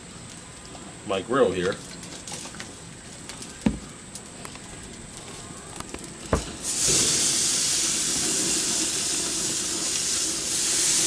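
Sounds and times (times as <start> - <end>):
steaks sizzling on grill: 6.2 - 11.0.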